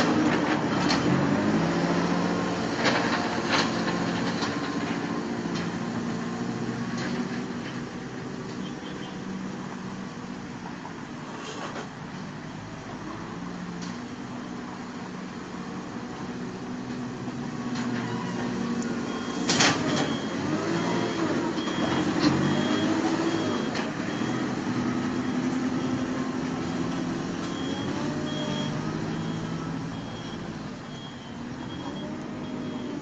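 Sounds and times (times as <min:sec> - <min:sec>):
diesel engine revving: 0:00.0 - 0:10.0, 0:15.0 - 0:33.0
reversing alarm beeping: 0:19.0 - 0:33.0.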